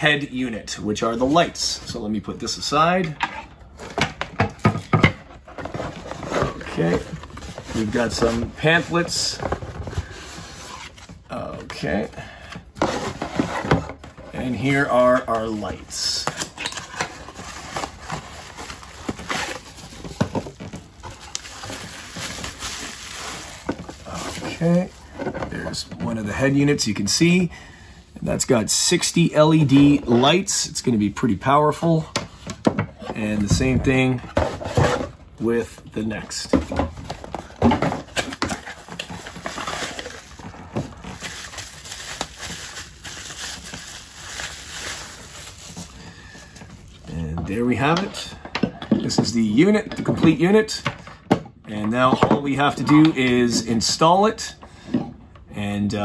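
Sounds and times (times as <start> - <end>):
cardboard and bubble wrap rustling: 3.7 - 27.4, 28.4 - 48.0.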